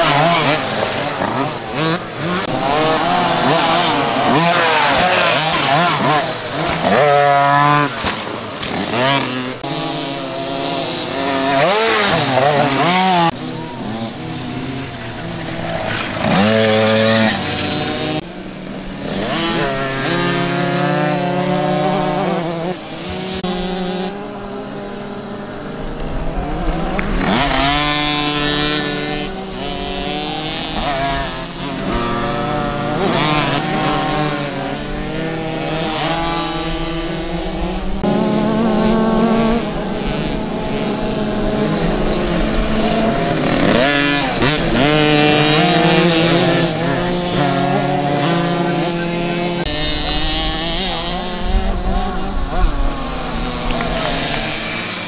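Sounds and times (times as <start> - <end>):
motocross bikes revving: 0.0 - 55.0.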